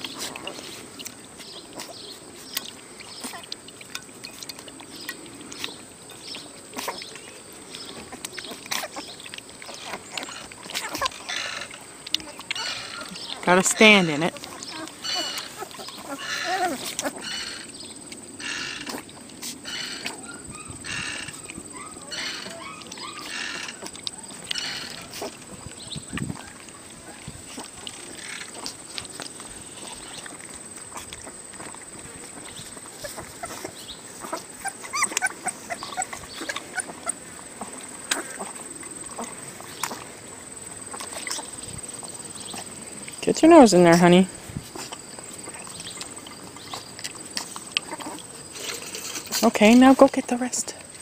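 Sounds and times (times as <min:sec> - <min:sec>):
puppies lapping from steel pan: 0:00.0 - 0:51.0.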